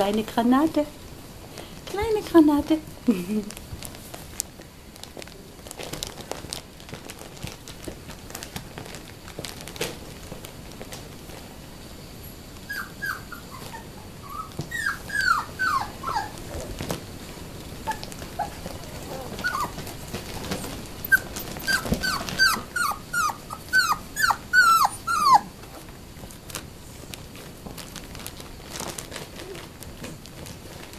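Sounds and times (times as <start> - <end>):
puppies yelping: 12.7 - 16.4, 17.8 - 25.9.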